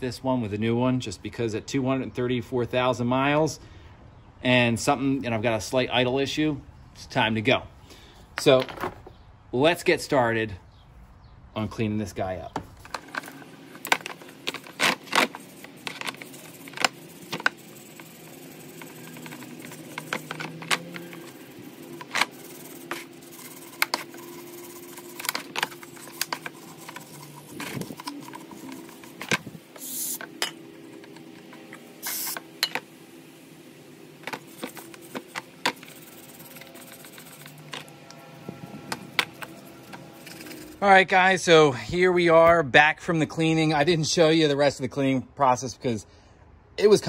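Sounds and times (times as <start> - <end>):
wire brush scrubbing metal: 13.0 - 40.8.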